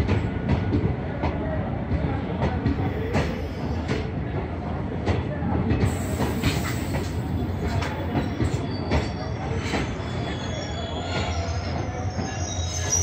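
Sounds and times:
train coaches rumbling past: 0.0 - 13.0
faint high wheel squeal: 6.4 - 13.0.

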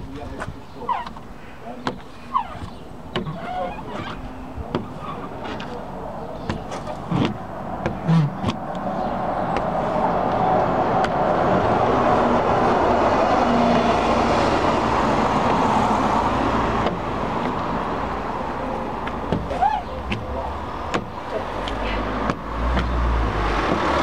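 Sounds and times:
car passing: 3.7 - 24.0.

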